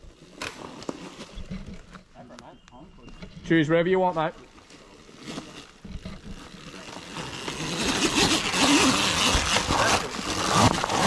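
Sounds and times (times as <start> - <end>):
electric dirt bike climbing: 4.1 - 11.0.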